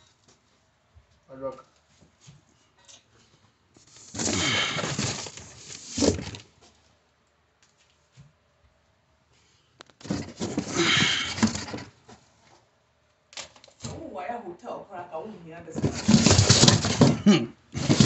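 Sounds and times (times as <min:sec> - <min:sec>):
cardboard boxes scraping and rustling: 0:03.8 - 0:06.5, 0:10.0 - 0:12.0, 0:15.8 - 0:18.0.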